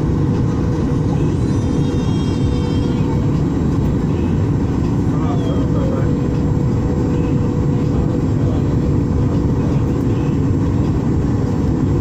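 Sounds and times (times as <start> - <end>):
aircraft cabin engine roar: 0.0 - 12.0.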